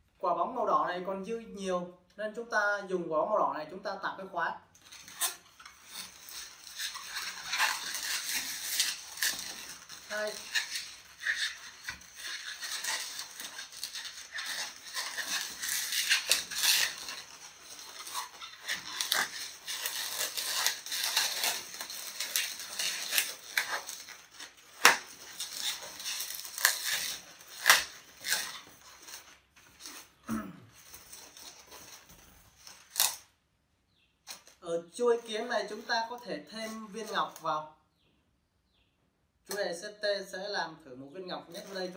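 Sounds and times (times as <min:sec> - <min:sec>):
balloons squeaking and rubbing: 0:04.8 - 0:33.4, 0:34.1 - 0:37.6, 0:41.4 - 0:41.9.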